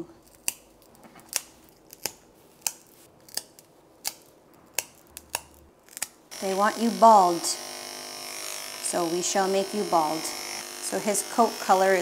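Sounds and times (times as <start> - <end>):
nail clippers snipping claws: 0.2 - 6.2.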